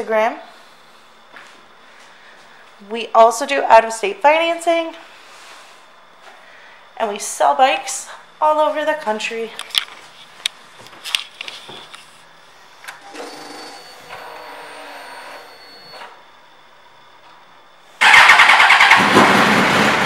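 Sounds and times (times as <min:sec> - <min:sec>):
motorcycle engine starting and running: 0:18.0 - 0:20.0.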